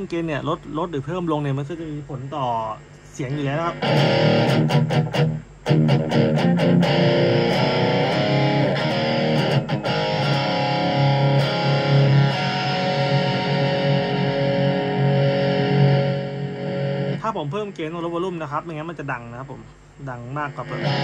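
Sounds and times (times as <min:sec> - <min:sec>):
distorted electric guitar chords: 0:03.2 - 0:18.4, 0:20.3 - 0:21.0.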